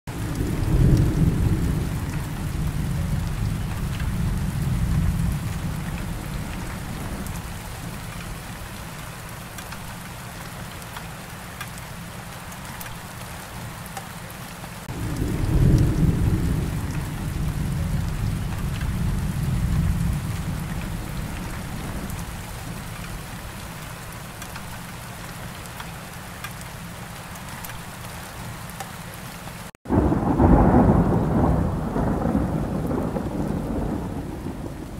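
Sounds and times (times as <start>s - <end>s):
thunder rolling: 0.1s - 8.6s, 14.9s - 23.4s, 29.9s - 34.9s
steady rain: 0.1s - 34.9s.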